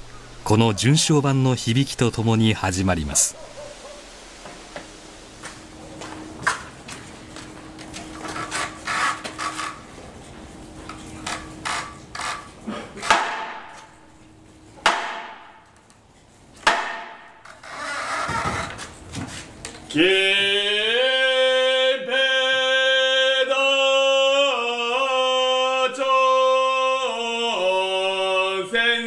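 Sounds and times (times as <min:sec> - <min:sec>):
mallet striking wooden board: 0:13.1 - 0:13.9, 0:14.8 - 0:15.6, 0:16.6 - 0:17.4.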